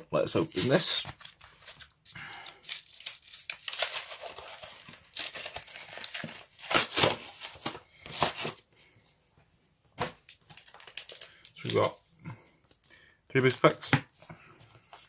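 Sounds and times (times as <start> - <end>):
card tearing: 2.6 - 8.6
plastic crinkling: 10.4 - 12.0.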